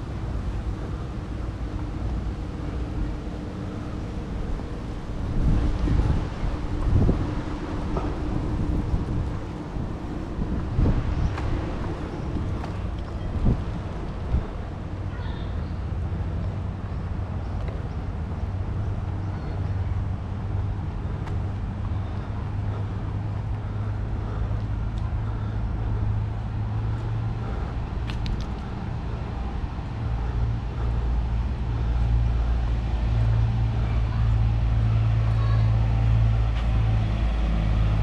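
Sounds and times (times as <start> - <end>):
light street noise: 0.0 - 38.0
car engine idling: 17.8 - 37.0.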